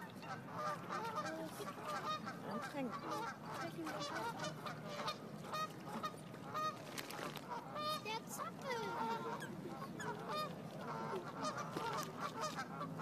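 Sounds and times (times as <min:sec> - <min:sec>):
waterfowl honking: 0:00.0 - 0:13.0.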